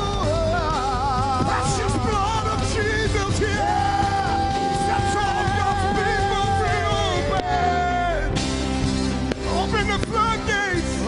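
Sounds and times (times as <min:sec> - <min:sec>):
man singing a long high note: 0:00.0 - 0:08.4.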